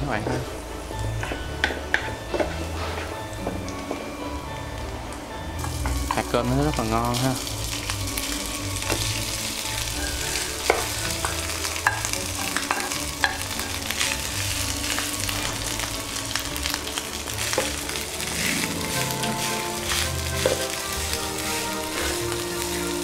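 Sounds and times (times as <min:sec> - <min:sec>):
rice and garlic sizzling in oil: 0:00.0 - 0:23.0
wooden spatula knocking on pan: 0:01.2 - 0:02.6, 0:10.6 - 0:13.5, 0:19.2 - 0:20.8.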